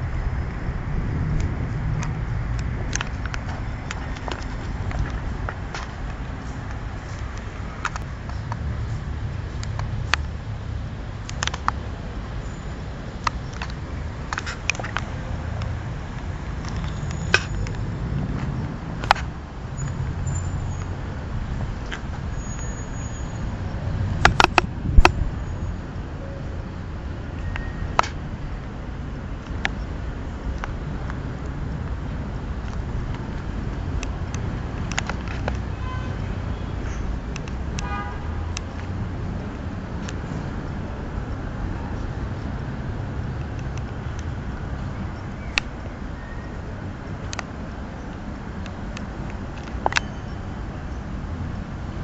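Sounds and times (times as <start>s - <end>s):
car engine low rumble: 0.0s - 12.3s
street traffic rumbling: 0.0s - 52.0s
sharp clicks: 1.3s - 8.7s, 11.2s - 11.8s, 24.2s - 25.2s, 32.6s - 35.7s, 37.3s - 37.9s.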